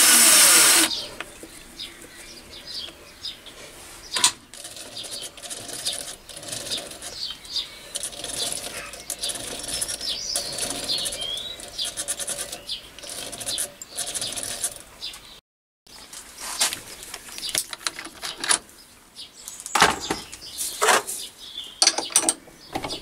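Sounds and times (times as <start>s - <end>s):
cordless drill running: 0.0s - 1.0s.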